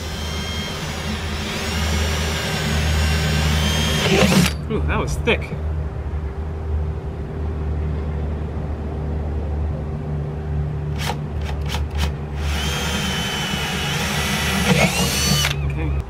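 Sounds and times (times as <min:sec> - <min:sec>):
cordless drill boring: 0:00.0 - 0:04.6, 0:11.0 - 0:15.8.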